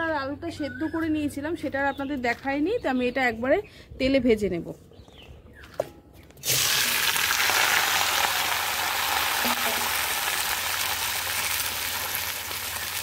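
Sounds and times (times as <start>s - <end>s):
food sizzling in hot oil: 6.4s - 13.0s.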